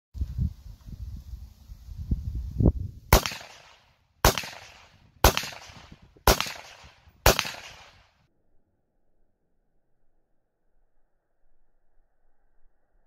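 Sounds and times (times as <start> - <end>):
rifle shots echoing: 3.1 - 8.2.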